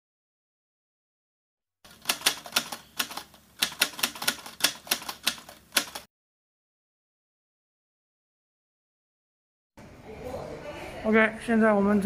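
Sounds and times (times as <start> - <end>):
typewriter key clicks: 1.9 - 6.1.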